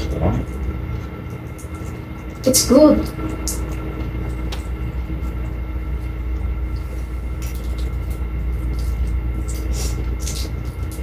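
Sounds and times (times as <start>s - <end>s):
low mechanical hum: 0.0s - 11.0s
eggshell crackling as peeled: 3.2s - 11.0s.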